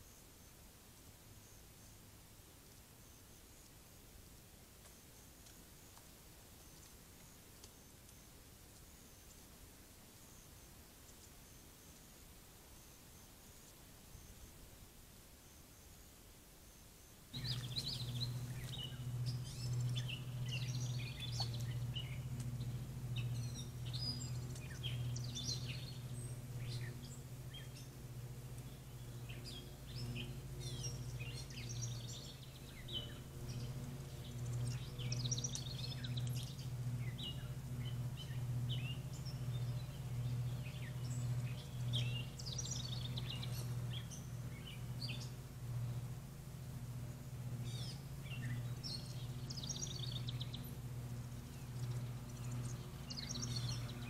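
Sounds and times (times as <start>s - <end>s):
songbirds chirping and trilling: 16.7s - 54.0s
steady low hum: 17.2s - 54.0s.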